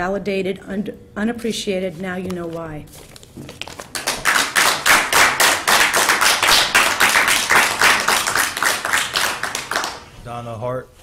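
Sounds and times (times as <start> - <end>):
audience applauding: 3.7 - 10.1.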